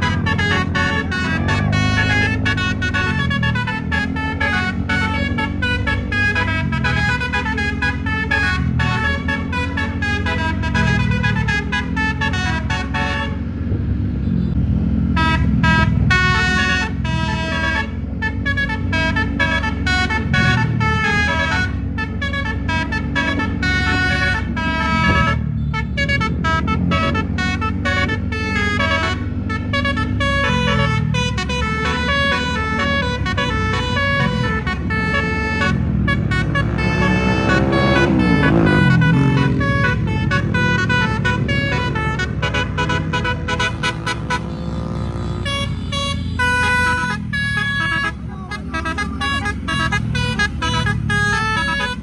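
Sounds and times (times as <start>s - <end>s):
musical air horn melody: 0.0s - 13.4s, 15.2s - 44.7s, 45.3s - 52.0s
low engine hum: 0.0s - 52.0s.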